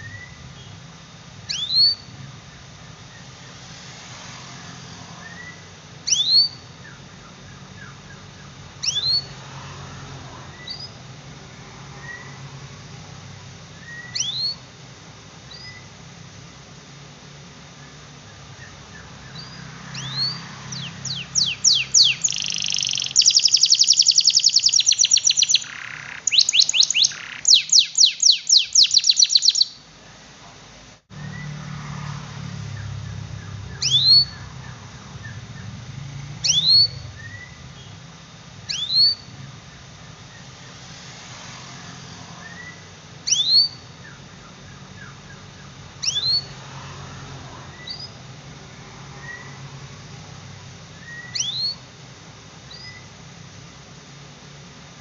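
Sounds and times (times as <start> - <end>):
rising whistles: 0.0 - 0.8, 1.4 - 2.2, 4.6 - 9.4, 10.5 - 11.0, 11.9 - 12.5, 13.8 - 14.7, 15.5 - 15.9, 17.8 - 29.8, 31.1 - 31.8, 32.5 - 39.4, 42.0 - 46.6, 47.7 - 48.2, 49.1 - 49.7, 51.0 - 51.8, 52.7 - 53.1
canary singing trills: 0.0 - 2.4, 4.9 - 9.5, 10.5 - 11.2, 12.0 - 12.4, 13.7 - 14.7, 15.4 - 16.0, 17.7 - 29.9, 31.2 - 31.6, 32.6 - 40.8, 42.0 - 46.6, 47.7 - 48.3, 49.2 - 49.6, 50.9 - 51.9, 52.6 - 53.2
low steady hum: 0.0 - 55.0.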